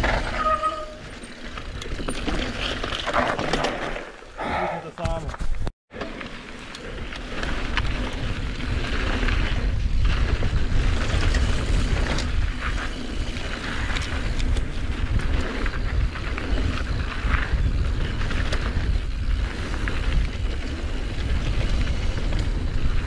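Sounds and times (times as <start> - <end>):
tyres rumbling on dirt trail: 0.0 - 23.0
wind rushing over microphone: 7.3 - 23.0.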